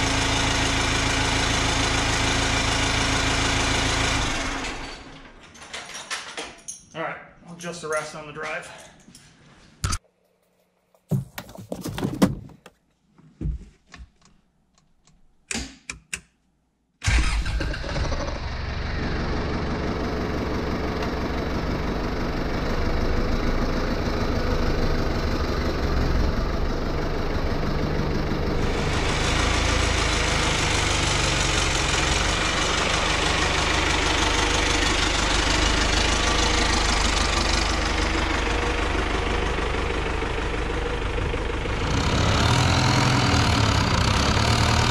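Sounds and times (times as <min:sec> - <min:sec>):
diesel engine running at low revs: 0:00.0 - 0:05.2, 0:18.0 - 0:44.9
short knocks and clunks: 0:11.0 - 0:12.8.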